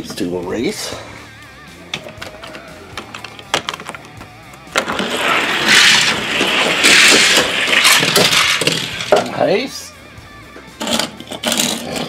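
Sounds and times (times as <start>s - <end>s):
toy cars clicking: 4.8s - 9.2s
toy cars rattling down track: 4.8s - 9.4s.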